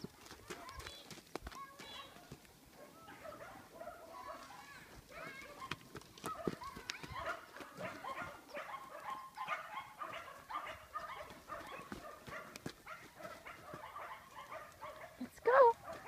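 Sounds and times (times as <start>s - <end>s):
dogs yipping and whining: 5.1s - 15.2s.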